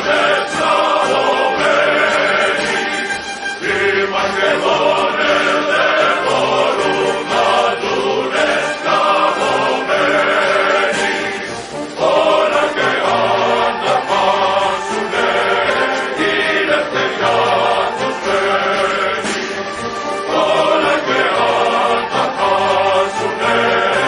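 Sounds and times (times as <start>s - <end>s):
choir singing held notes: 0.0s - 24.0s
choral accompaniment: 0.0s - 24.0s.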